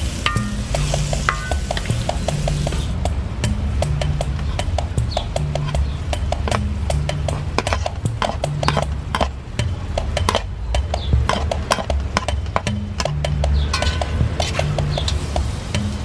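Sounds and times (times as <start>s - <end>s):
utensil scraping in a wok: 0.0s - 3.0s
background music with bass line: 0.0s - 16.0s.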